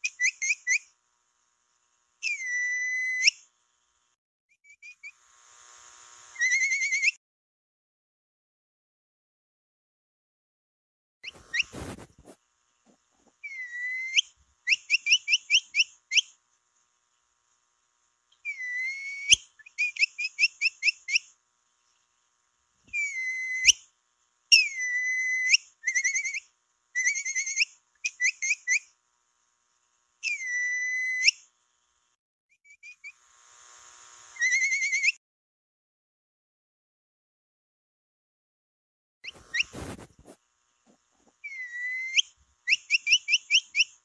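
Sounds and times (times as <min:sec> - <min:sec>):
short whistled chirps: 0:02.2 - 0:03.5, 0:06.4 - 0:07.2, 0:11.2 - 0:12.2, 0:13.4 - 0:16.3, 0:18.4 - 0:21.3, 0:22.9 - 0:23.9, 0:30.2 - 0:31.5, 0:34.4 - 0:35.2, 0:39.2 - 0:40.4, 0:41.4 - 0:44.0.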